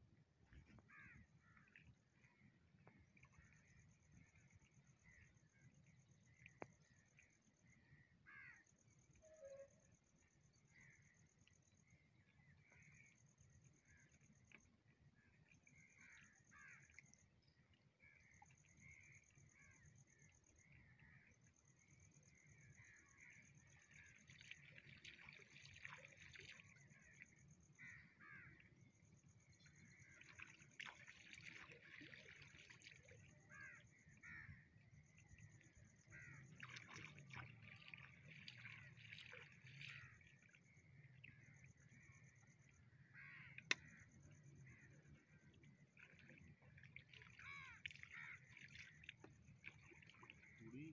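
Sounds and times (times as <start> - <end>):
faint birds calling: 29.6 - 50.9.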